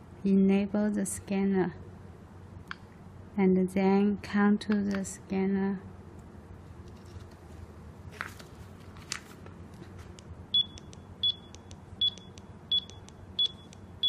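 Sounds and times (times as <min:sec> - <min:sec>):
barcode scanner short high beeps: 0:10.6 - 0:13.8.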